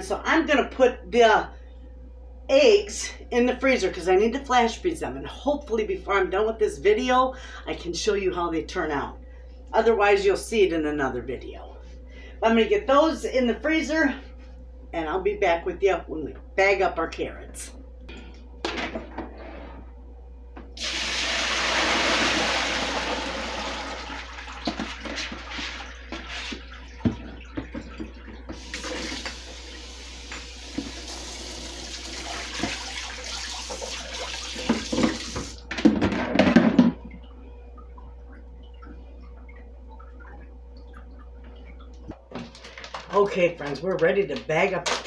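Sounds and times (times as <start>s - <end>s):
tap water running into sink: 20.8s - 35.6s.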